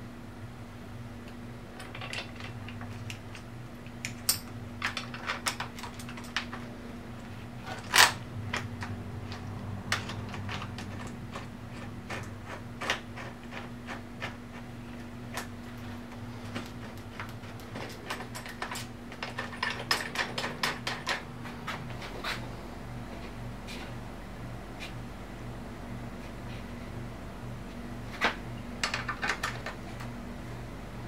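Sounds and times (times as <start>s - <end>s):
metal bolts clicking and tapping: 1.8s - 6.6s, 16.9s - 21.2s.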